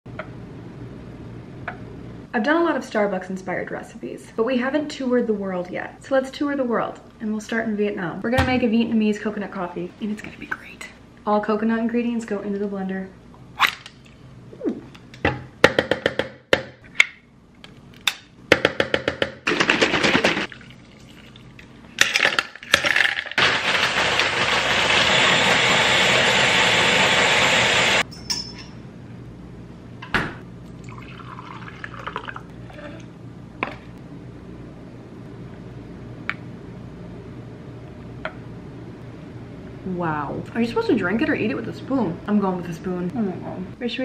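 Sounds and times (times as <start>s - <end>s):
blender running: 22.8s - 28.0s.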